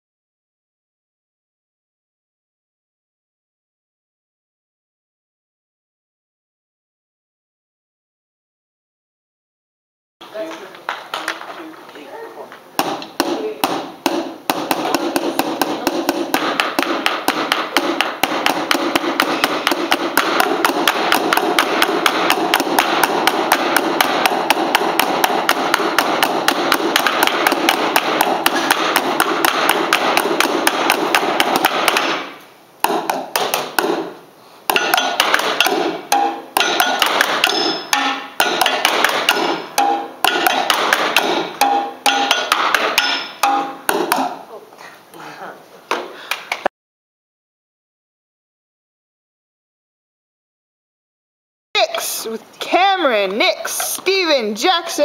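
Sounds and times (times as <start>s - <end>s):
drumsticks beating on metal chairs: 12.8s - 44.5s
ringing metal tones: 34.7s - 44.4s.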